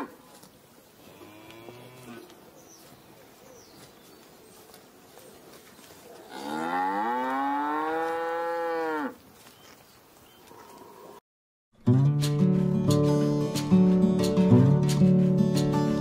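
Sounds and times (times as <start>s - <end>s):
calf mooing: 6.1s - 9.2s.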